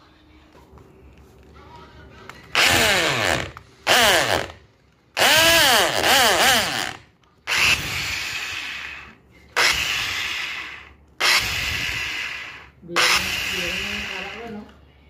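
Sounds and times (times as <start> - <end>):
electric drill whining: 2.5 - 4.6, 5.2 - 14.7
drill bit boring into wood: 2.6 - 4.6, 5.2 - 14.6.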